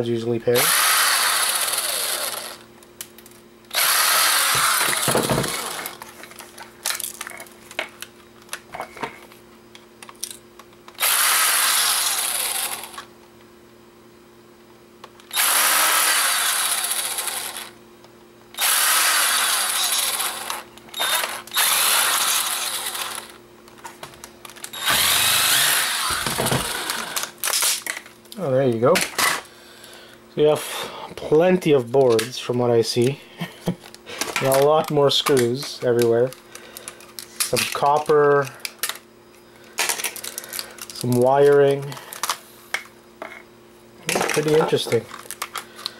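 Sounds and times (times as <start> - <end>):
cordless screwdriver running: 0.6 - 2.6, 3.7 - 6.0, 11.0 - 13.1, 15.3 - 17.7, 18.6 - 23.4, 24.6 - 27.3.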